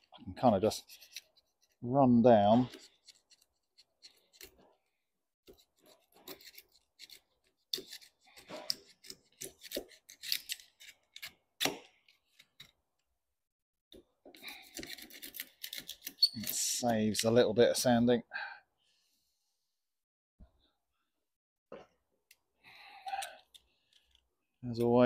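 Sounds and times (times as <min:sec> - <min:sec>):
knife scraping glass cloth: 0:05.5 - 0:11.3.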